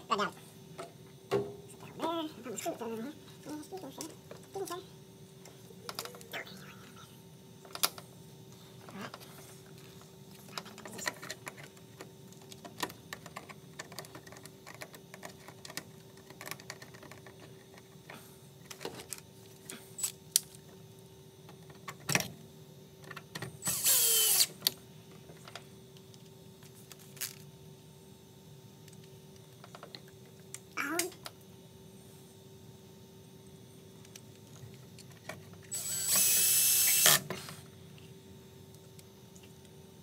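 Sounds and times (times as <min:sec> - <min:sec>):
cordless drill driving screw: 0:23.7 - 0:24.5, 0:35.7 - 0:37.2.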